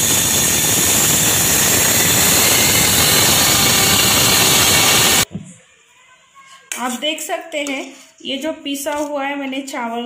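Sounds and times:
mixer grinder whirring: 0.0 - 5.3.

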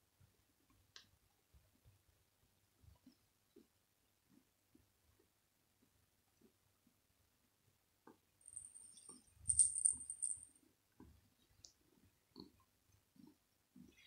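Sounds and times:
small bell jingling: 8.4 - 10.5.

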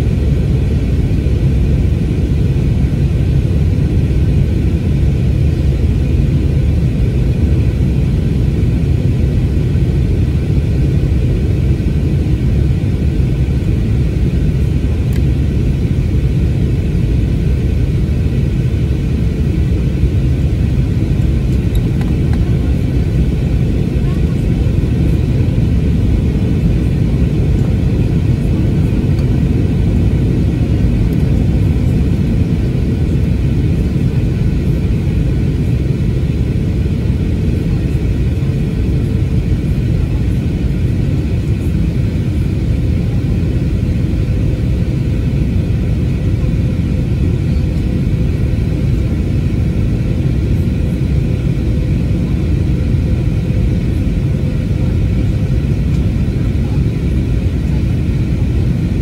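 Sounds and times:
faint steady hum: 0.0 - 45.1
airplane cabin rumble: 0.0 - 59.0.

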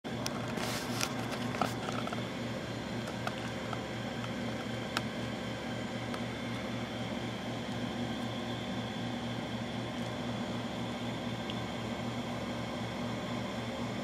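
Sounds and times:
pulsing low hum and hiss: 0.0 - 14.0
camera handling clicks and rubs: 0.2 - 2.2.

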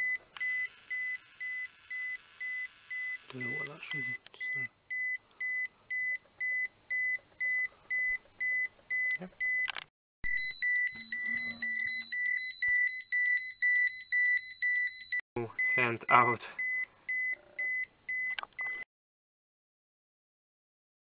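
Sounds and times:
high repeating alarm beep: 0.0 - 18.9.

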